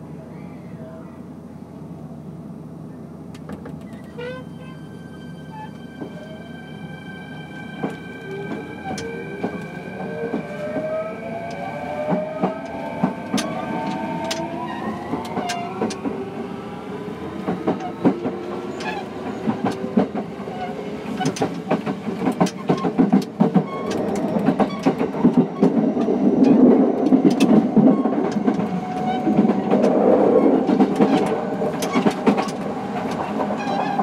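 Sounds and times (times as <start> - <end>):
rail-joint clicks: 3.3 - 4.4, 7.8 - 16.2, 17.4 - 34.0.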